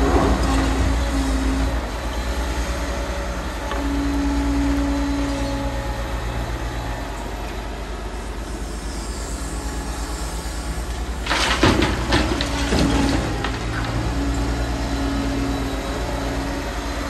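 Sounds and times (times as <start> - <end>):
excavator diesel engine running: 0.0 - 17.0
loud clattering knocks: 11.2 - 13.9.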